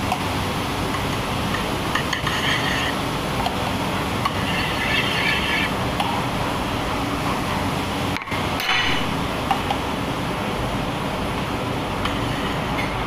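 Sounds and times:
kitchen rushing hum: 0.0s - 13.0s
high-pitched squeals: 4.4s - 5.7s.

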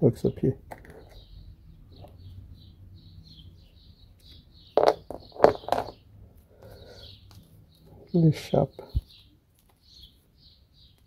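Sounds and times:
bird chirping: 0.0s - 11.0s
plastic parts knocking and clicking: 4.8s - 6.0s.

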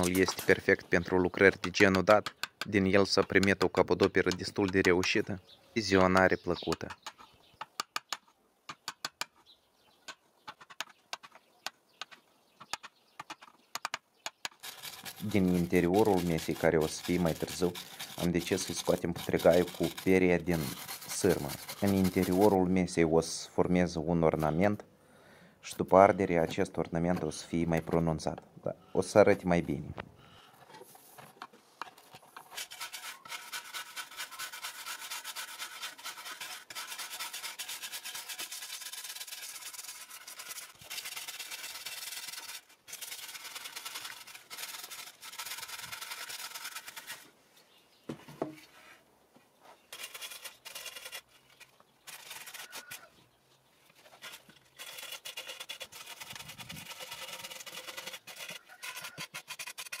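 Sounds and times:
wire brush scrubbing wood: 0.0s - 2.1s, 14.6s - 22.7s, 32.0s - 47.3s, 49.9s - 53.1s, 54.0s - 60.0s.

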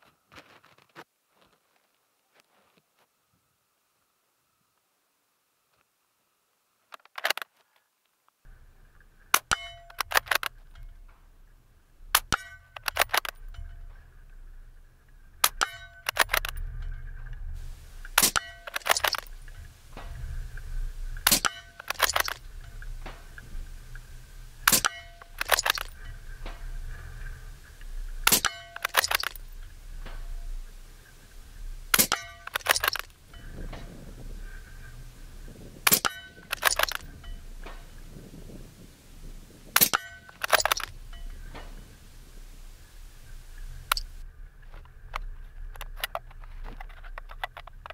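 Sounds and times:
sharp crack: 9.2s - 11.4s, 12.0s - 14.1s, 15.3s - 38.2s, 39.4s - 44.2s
suppressed rifle shots: 9.3s - 10.6s, 12.1s - 13.5s, 15.4s - 16.6s, 17.6s - 27.0s, 28.2s - 31.2s, 31.8s - 34.9s, 35.8s - 38.0s, 39.7s - 44.2s.

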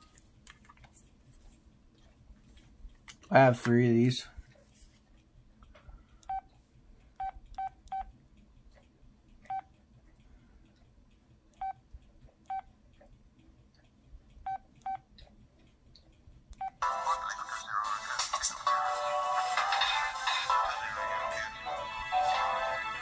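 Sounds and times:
phone keypad beeps: 7.2s - 8.1s, 14.5s - 15.0s.

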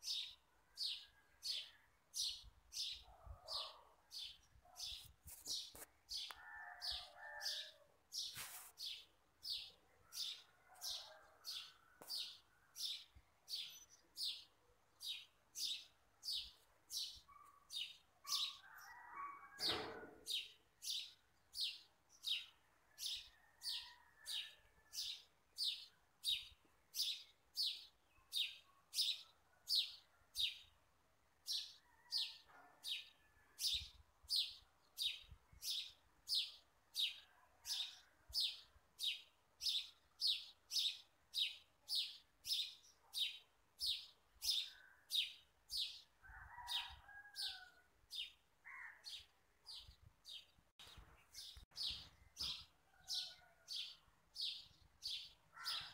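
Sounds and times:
soft rustles: 5.0s - 5.9s, 8.3s - 8.8s
bird chirping: 49.0s - 55.9s.

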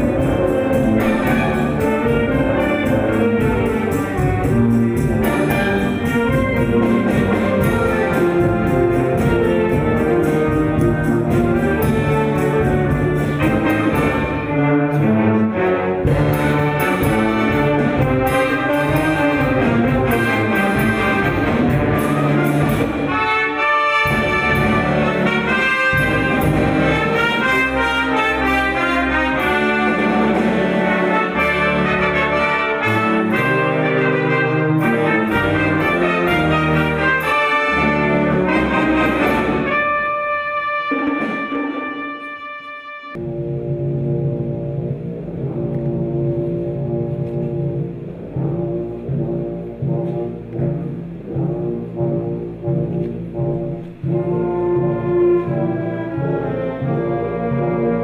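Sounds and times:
orchestral music with brass: 0.0s - 58.0s.

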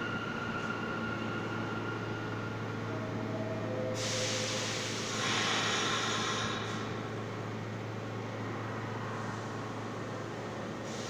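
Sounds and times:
subway train humming: 0.0s - 11.0s
hiss of air: 4.0s - 6.8s.

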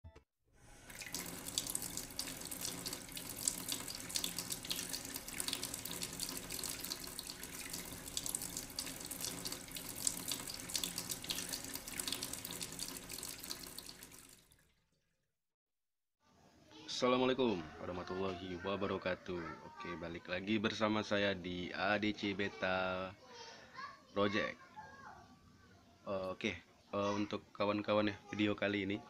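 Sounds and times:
water trickling and splashing: 0.6s - 15.2s.

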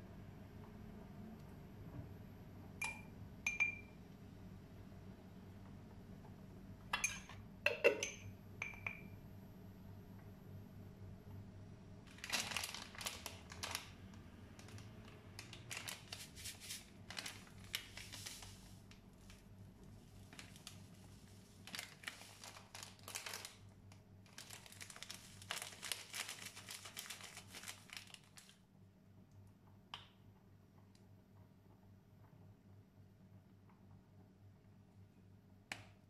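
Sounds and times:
spices rustling and scraping: 15.8s - 18.8s.

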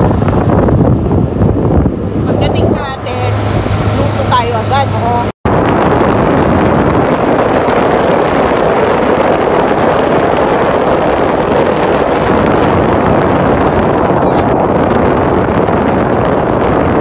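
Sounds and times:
motorboat engine drone: 0.0s - 17.0s
wind noise on microphone: 0.0s - 17.0s.

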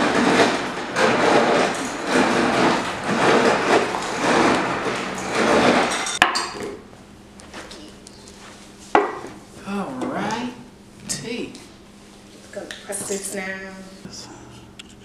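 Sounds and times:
ice machine dispensing ice: 0.0s - 6.8s.

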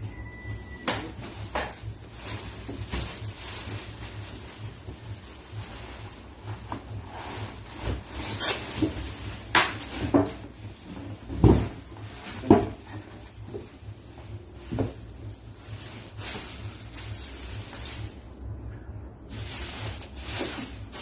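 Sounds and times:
plastic wrap rustling: 0.4s - 18.4s, 19.2s - 21.0s
cardboard carton knocking and scraping: 6.5s - 13.8s, 14.6s - 15.1s.

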